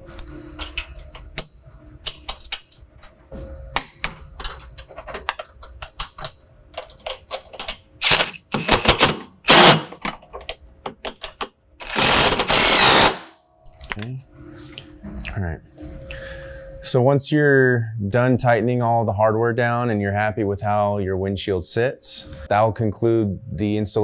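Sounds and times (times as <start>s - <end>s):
impact driver bursts: 8.0s - 10.0s, 11.8s - 13.4s.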